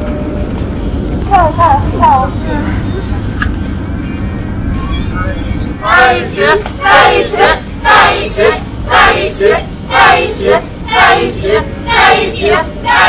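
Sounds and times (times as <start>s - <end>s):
crowd chanting in unison: 5.8s - 13.0s.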